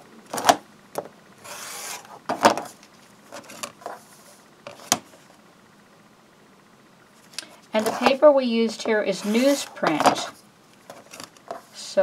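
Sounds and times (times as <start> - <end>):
rustling scrape: 1.4 - 5.3, 7.8 - 8.2, 8.8 - 11.8.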